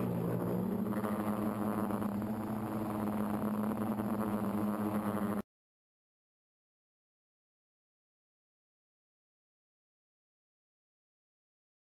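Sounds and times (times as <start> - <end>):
rc aircraft motors buzzing: 0.0 - 5.4.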